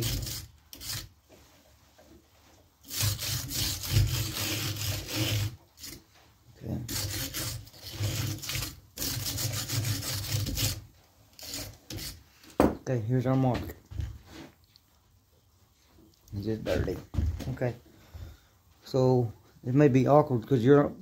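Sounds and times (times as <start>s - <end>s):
saw chain scraping along bar: 0.0s - 1.1s, 2.8s - 6.0s, 6.8s - 12.2s.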